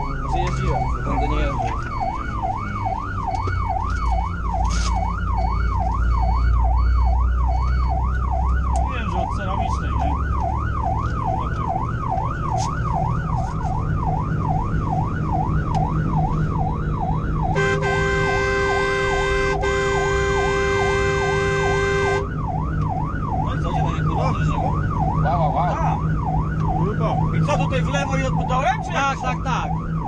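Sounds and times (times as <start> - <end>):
engine and road rumble: 0.0 - 30.0
siren wailing: 0.0 - 30.0
steady horn: 17.6 - 22.3.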